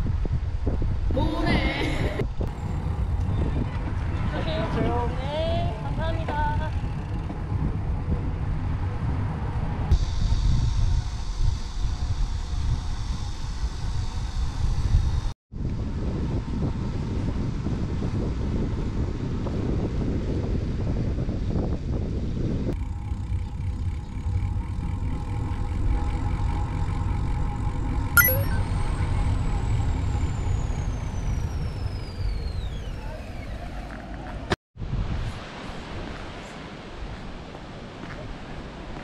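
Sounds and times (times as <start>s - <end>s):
wind buffeting microphone: 0.0s - 11.6s, 14.7s - 25.9s
high falling tone: 28.2s - 29.2s
road and tyre noise: 28.7s - 39.0s.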